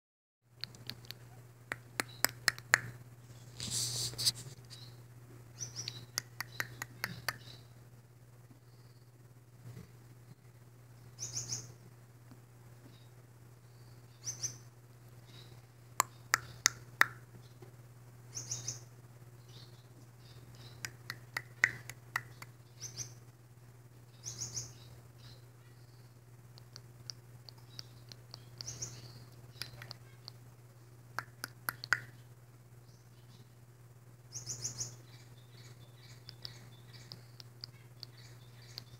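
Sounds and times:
bird chattering clicks and chirps: 0.6 - 3.0, 5.6 - 7.6, 16.0 - 17.3, 20.5 - 23.1, 26.5 - 30.4, 31.1 - 32.2, 34.3 - 38.9.

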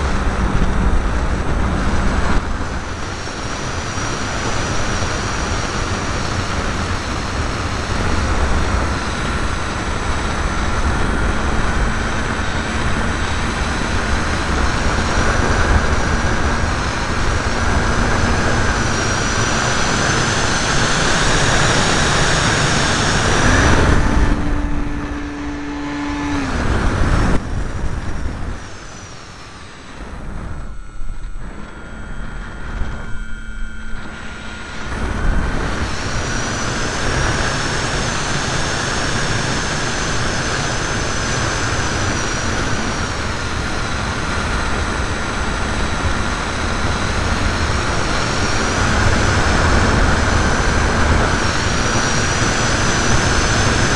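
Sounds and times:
model plane motor whine: 0.0 - 53.9
air rushing: 7.8 - 31.8.

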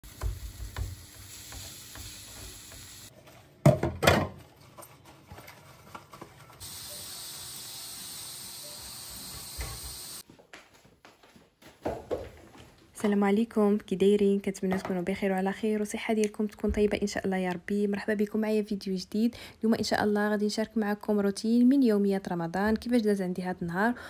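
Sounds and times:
vegetables sizzling in a frying pan: 0.0 - 3.1, 6.6 - 10.2
steady hiss: 6.6 - 10.2.

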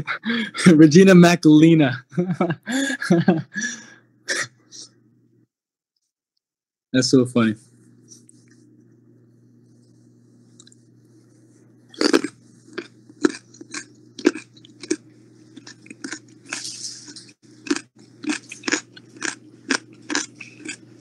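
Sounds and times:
low electrical hum: 0.0 - 5.5, 7.0 - 21.0.

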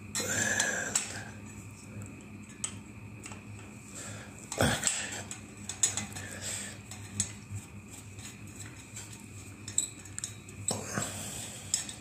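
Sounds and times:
light clicks and metal ticks: 2.0 - 3.7, 4.8 - 7.4, 8.6 - 10.8, 11.7 - 12.0.

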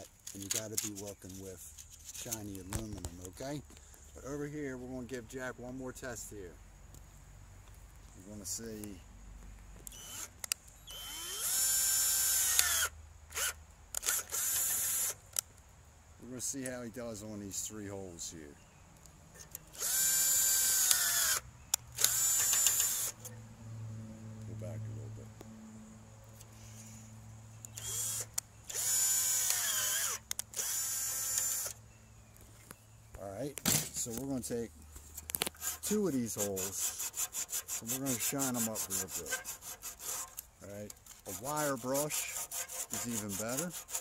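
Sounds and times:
cordless drill whining: 9.9 - 15.2, 19.7 - 21.4, 22.0 - 23.2, 27.7 - 31.8.

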